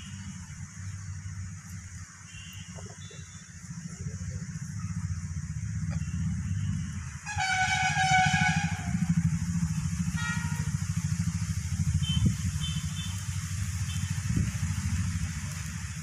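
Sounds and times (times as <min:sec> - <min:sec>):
engine rumble: 0:00.0 - 0:16.0
vehicle horn: 0:02.3 - 0:03.4, 0:05.9 - 0:09.2, 0:10.1 - 0:10.8, 0:12.0 - 0:13.2.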